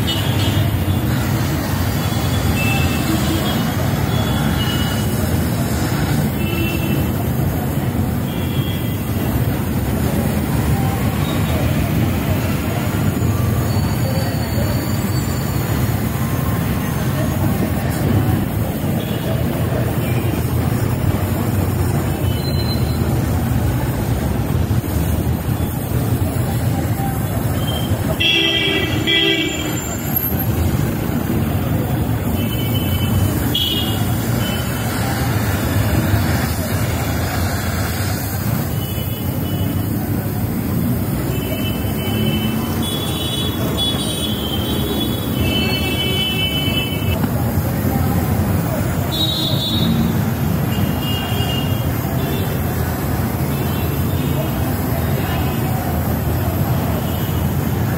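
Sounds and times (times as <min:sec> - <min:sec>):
road traffic rumble: 0:00.0 - 0:57.9
vehicle horns tooting: 0:27.6 - 0:30.4, 0:32.2 - 0:34.8, 0:49.0 - 0:52.5
gas torch flame hissing: 0:33.0 - 0:41.3.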